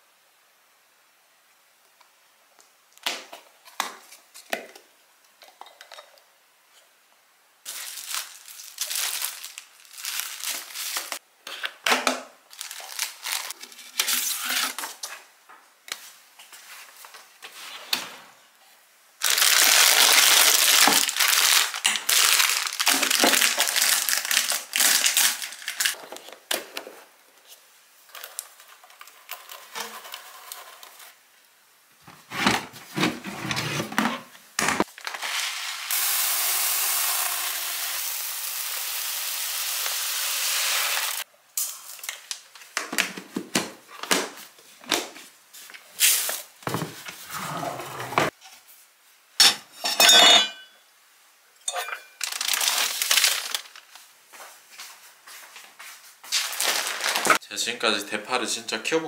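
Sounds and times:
plastic packaging crinkling: 7.7s - 11.2s, 12.5s - 14.4s, 19.2s - 26.0s, 52.2s - 54.1s, 56.3s - 57.4s.

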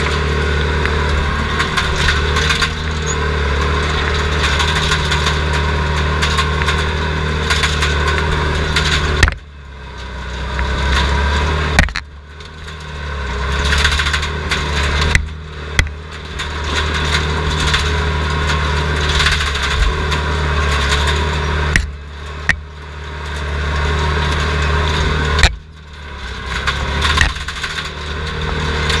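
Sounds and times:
diesel engine running hard: 0.0s - 29.0s
machinery and brush clatter: 0.0s - 29.0s.

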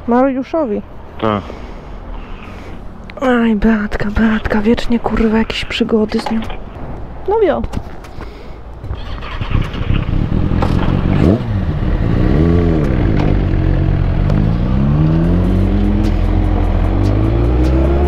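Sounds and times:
motorcycle engine accelerating: 8.9s - 18.0s.

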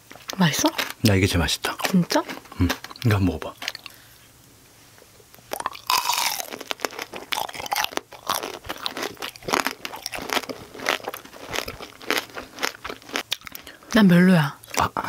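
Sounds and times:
candy shell crunching when bitten: 5.5s - 13.8s
chewing: 5.5s - 13.9s.

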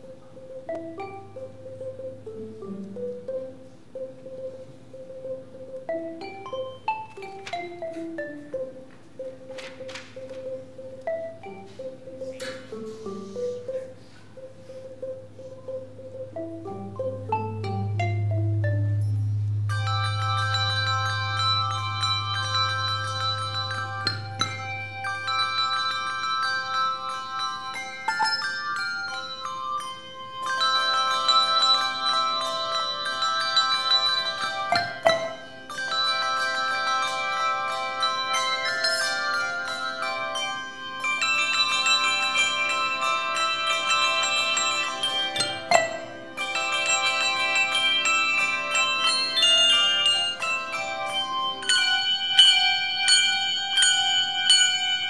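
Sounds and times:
handbell choir playing: 0.0s - 55.0s.

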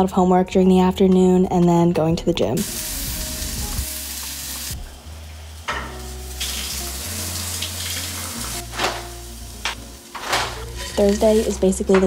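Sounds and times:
saucepan sizzling: 2.6s - 11.9s.

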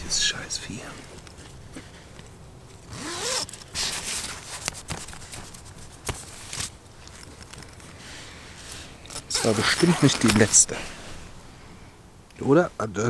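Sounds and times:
zipper rasping: 2.9s - 4.4s, 9.1s - 10.6s.

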